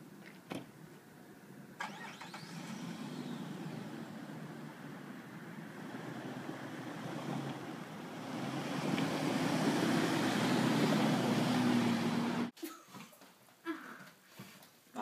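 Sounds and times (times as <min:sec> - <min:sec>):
car engine approaching: 0:01.7 - 0:12.5.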